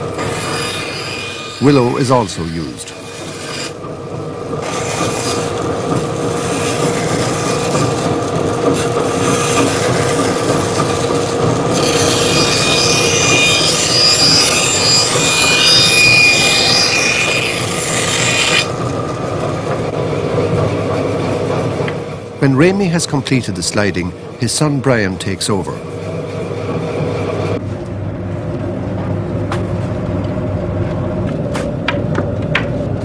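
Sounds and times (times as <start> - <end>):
bandsaw cutting wood: 0.0 - 3.9, 4.6 - 18.9.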